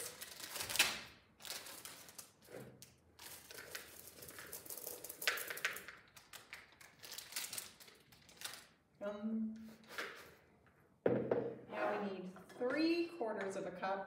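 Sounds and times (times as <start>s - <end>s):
plastic wrapper crinkling: 0.0s - 8.9s
candies rattling into plastic bowl: 1.4s - 8.8s.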